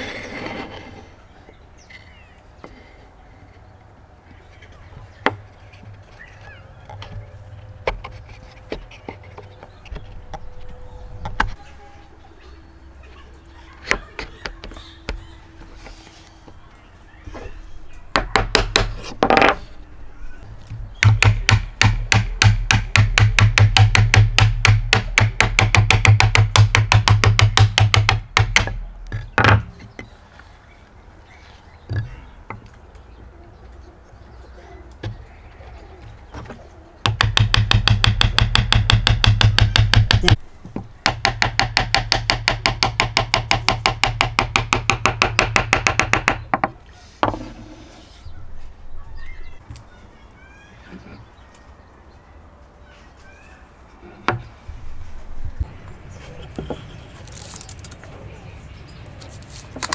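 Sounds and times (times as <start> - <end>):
hammer tapping on wooden board: 21.0 - 28.8, 37.0 - 40.4, 41.0 - 47.4.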